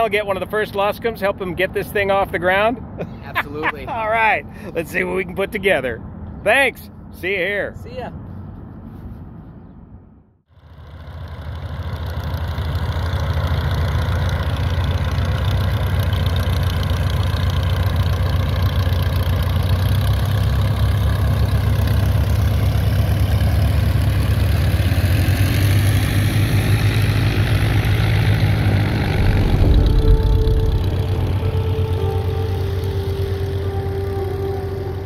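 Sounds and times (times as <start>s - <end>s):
light aircraft engine and propeller: 10.5s - 35.0s.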